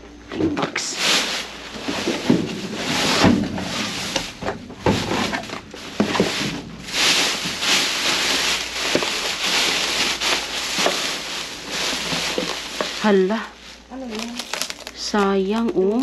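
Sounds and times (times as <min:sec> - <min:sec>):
cardboard boxes knocking and scraping: 0:00.4 - 0:13.2
plastic bags rustling: 0:00.4 - 0:16.0.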